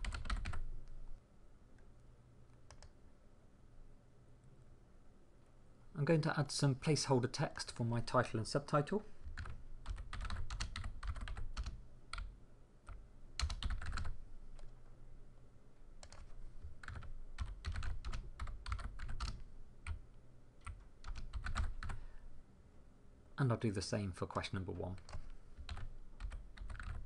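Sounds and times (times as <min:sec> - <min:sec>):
typing on computer keyboard: 0:00.0 - 0:00.6, 0:02.6 - 0:02.9, 0:09.2 - 0:12.3, 0:12.9 - 0:14.7, 0:16.0 - 0:20.0, 0:20.6 - 0:22.0, 0:25.0 - 0:27.0.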